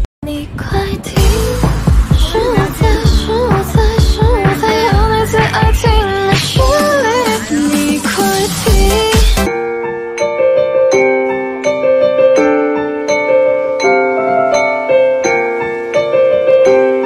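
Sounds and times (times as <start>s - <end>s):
slow gentle piano melody: 9.5s - 17.0s.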